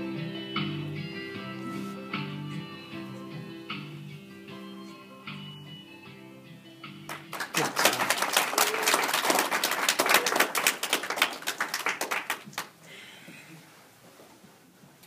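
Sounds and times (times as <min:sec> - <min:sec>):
audience applauding: 0:07.1 - 0:12.8
voices among claps: 0:07.1 - 0:12.8.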